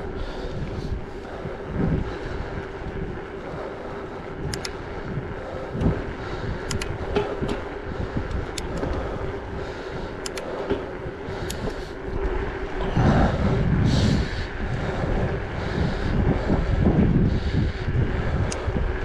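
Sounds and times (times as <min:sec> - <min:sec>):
tyres rolling on asphalt: 0:00.0 - 0:19.0
wind rushing over microphone: 0:00.0 - 0:19.0
sharp clicks: 0:04.4 - 0:04.8, 0:06.6 - 0:07.0, 0:08.2 - 0:09.0, 0:10.1 - 0:10.6.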